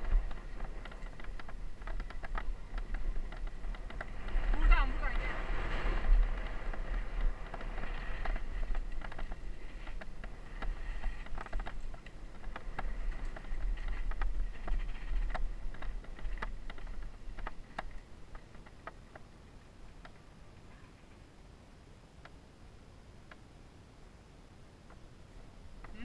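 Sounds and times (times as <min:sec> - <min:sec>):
bike rattling and clicking: 0:00.0 - 0:20.3
wind rumble on microphone: 0:00.0 - 0:26.0.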